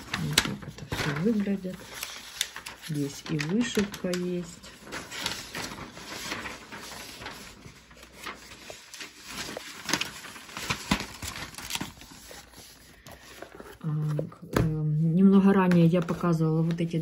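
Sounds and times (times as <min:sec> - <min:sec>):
paper rustling and crackling: 0:00.0 - 0:17.0.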